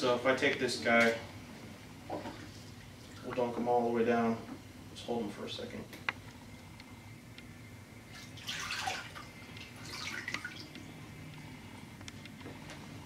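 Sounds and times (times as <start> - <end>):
water sloshing in tub: 2.1 - 3.7, 8.1 - 11.0
water dripping: 8.1 - 11.0.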